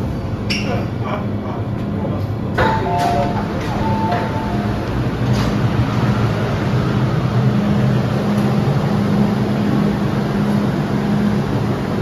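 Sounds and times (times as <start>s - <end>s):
train equipment humming: 0.0s - 12.0s.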